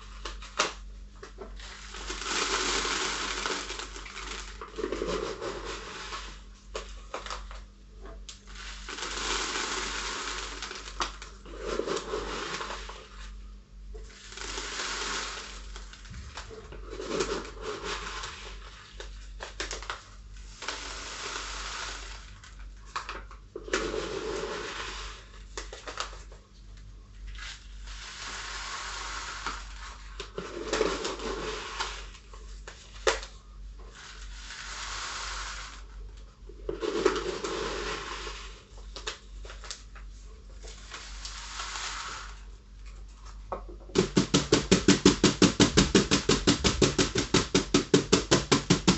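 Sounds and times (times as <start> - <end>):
granules poured into plastic bottle: 1.5 - 6.4, 8.4 - 13.1, 14.0 - 26.3, 27.2 - 32.3, 36.6 - 39.9, 40.6 - 42.6.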